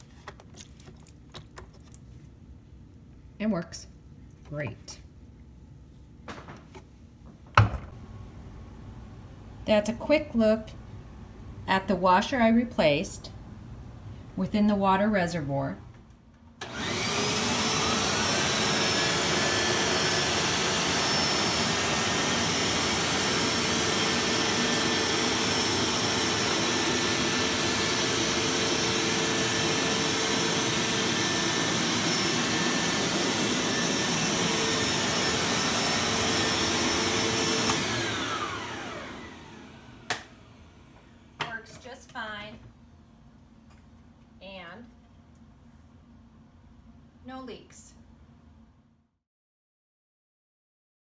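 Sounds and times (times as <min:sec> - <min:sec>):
carpet washer motor whine: 0:16.6 - 0:41.4.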